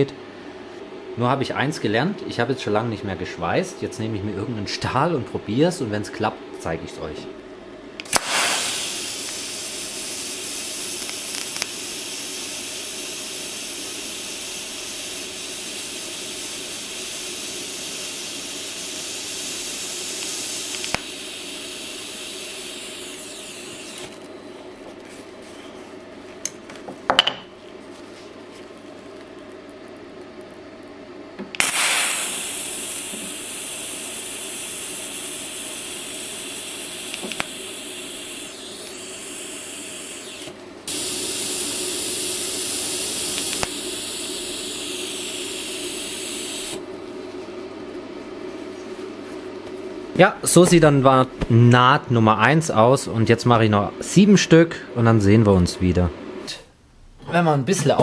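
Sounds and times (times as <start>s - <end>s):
welding arc hissing: 8.0s - 24.4s, 31.5s - 46.9s
sharp click: 37.1s - 37.5s.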